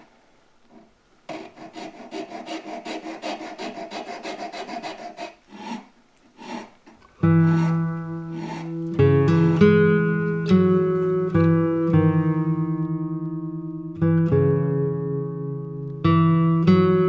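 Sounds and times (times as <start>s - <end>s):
hand file rasping on wood: 1.3s - 8.8s
acoustic guitar music: 7.1s - 17.0s.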